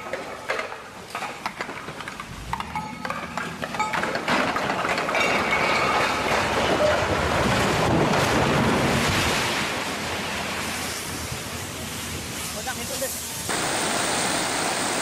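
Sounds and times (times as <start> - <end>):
rumble of collapsing concrete: 0.0 - 10.2.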